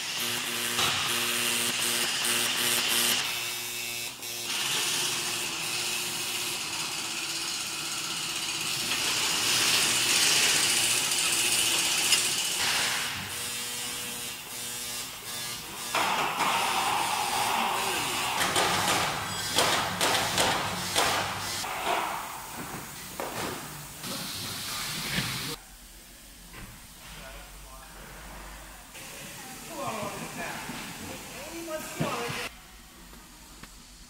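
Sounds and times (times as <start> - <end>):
marking machine humming: 0.0 - 12.6, 13.3 - 21.7
hiss: 16.0 - 25.6.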